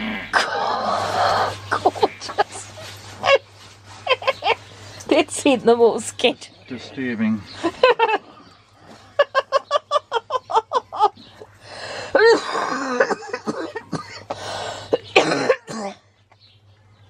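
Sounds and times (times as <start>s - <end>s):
person laughing hard: 9.2s - 11.3s
coughs: 12.2s - 14.3s, 15.0s - 16.0s.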